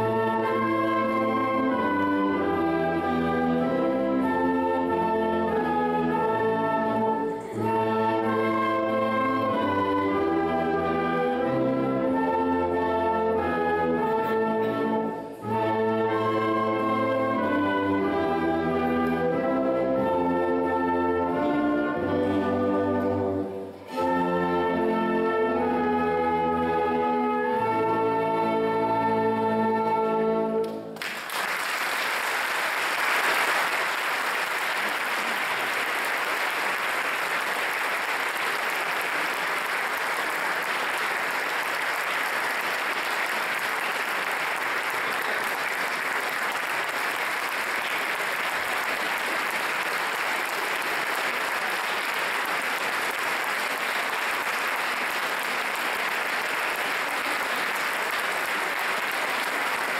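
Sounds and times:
audience applause: 0:31.0 - 0:59.9.

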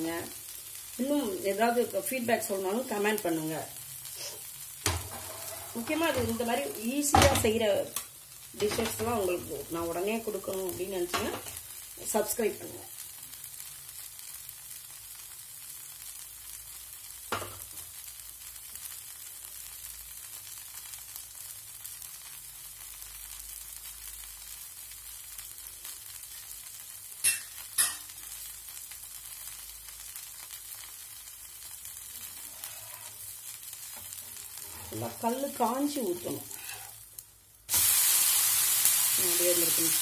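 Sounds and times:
batter sizzling on a griddle: 0:00.0 - 0:40.0.

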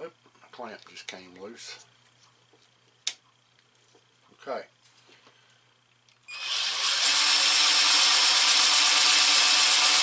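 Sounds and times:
cordless drill boring wood: 0:06.3 - 0:10.0.

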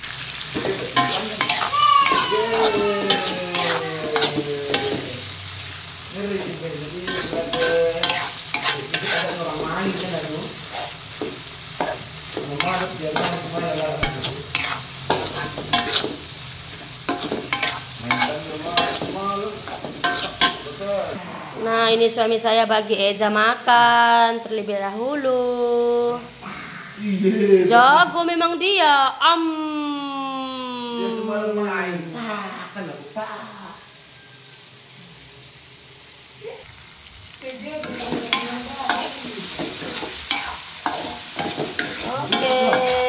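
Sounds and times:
oil sizzling: 0:00.0 - 0:21.2, 0:32.7 - 0:43.0
metal spatula scraping a wok: 0:00.4 - 0:01.7, 0:02.3 - 0:05.3, 0:06.4 - 0:21.6, 0:37.8 - 0:43.0.

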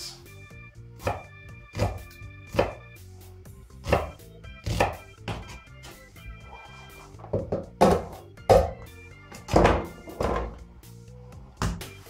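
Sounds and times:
knife chopping on wooden board: 0:01.0 - 0:02.8, 0:03.8 - 0:05.6, 0:07.3 - 0:08.8.

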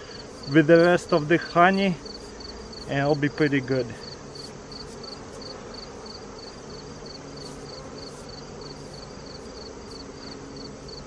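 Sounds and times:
bees buzzing: 0:00.0 - 0:11.0
insect chirping rhythmically: 0:00.0 - 0:11.0.

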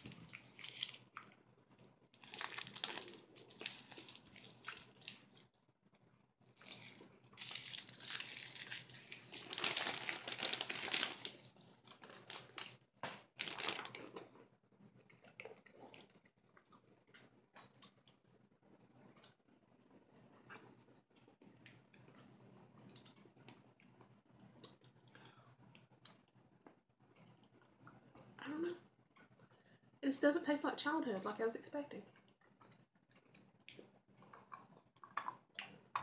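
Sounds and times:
plastic bag crinkling: 0:02.2 - 0:05.4, 0:06.6 - 0:14.2.

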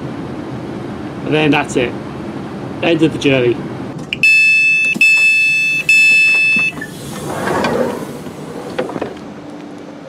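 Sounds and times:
door warning beeps: 0:04.1 - 0:07.2
sliding door opening: 0:04.8 - 0:09.3.

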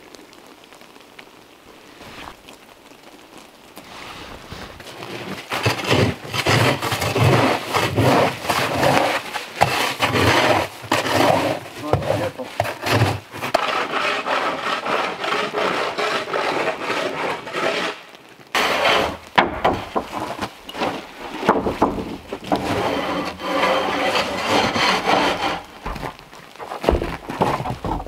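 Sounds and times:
wooden pole scraping snowy roof: 0:03.8 - 0:28.0
small knocks: 0:18.6 - 0:28.0.

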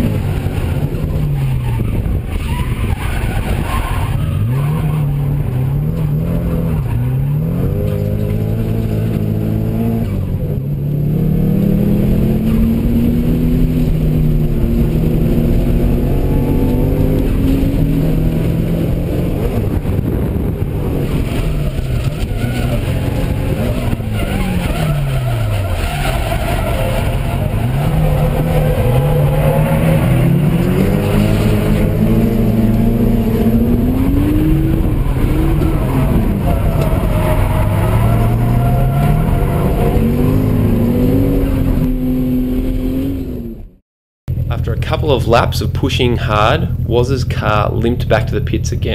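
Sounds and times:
car engine revving: 0:00.0 - 0:48.9.

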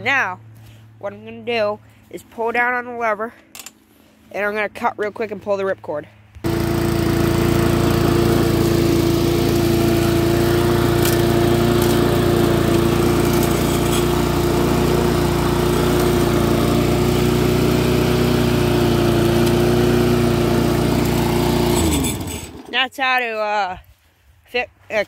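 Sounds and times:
lawn mower engine running: 0:06.4 - 0:22.8.

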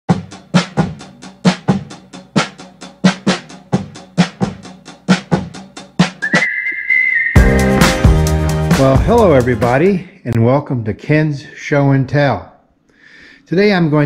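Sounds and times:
kick and snare drum beat: 0:00.1 - 0:06.2, 0:07.4 - 0:09.2.

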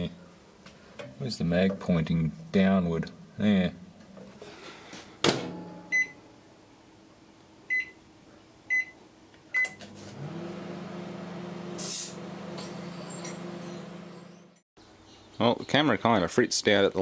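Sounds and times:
keypad beeps: 0:05.9 - 0:06.2, 0:07.7 - 0:08.0, 0:08.7 - 0:09.0
microwave humming: 0:09.6 - 0:14.6.

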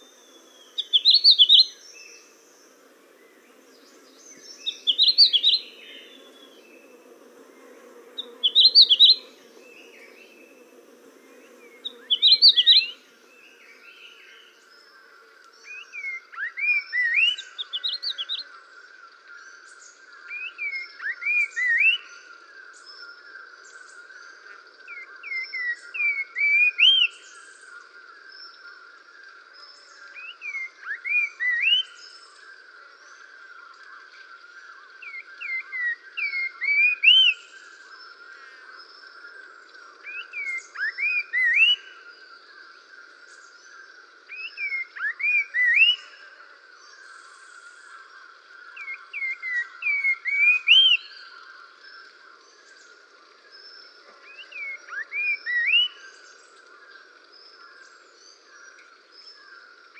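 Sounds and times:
chorus of insects or frogs: 0:00.0 - 0:59.9
songbird whistling: 0:04.6 - 0:06.1.

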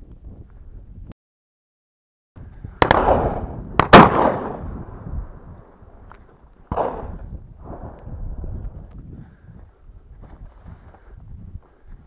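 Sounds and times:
shotgun shots echoing: 0:02.8 - 0:05.0, 0:06.7 - 0:07.9.

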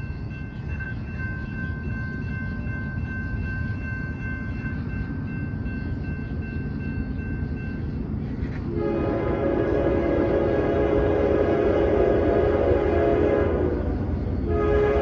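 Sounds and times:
high-pitched steady tones: 0:00.0 - 0:08.2
freight train rumble: 0:00.0 - 0:15.0.

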